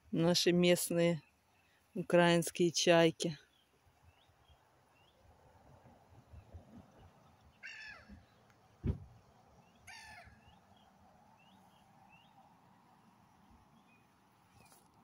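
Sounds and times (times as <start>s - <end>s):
thump: 8.8s - 9.2s
gulls calling: 9.8s - 10.6s.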